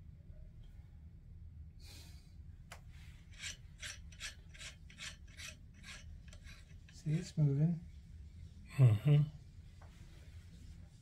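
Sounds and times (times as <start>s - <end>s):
rhythmic rasping strokes: 3.3s - 7.3s.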